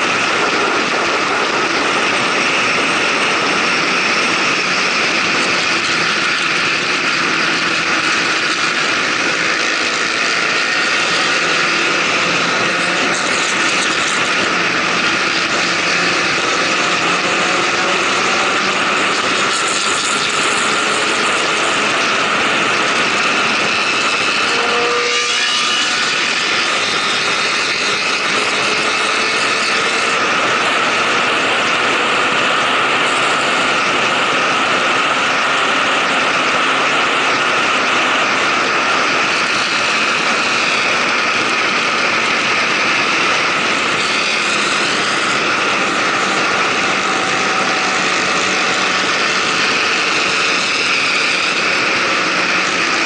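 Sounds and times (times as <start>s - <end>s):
motorcycle engine accelerating: 0.0s - 53.0s
wind rush over microphone: 0.0s - 53.0s.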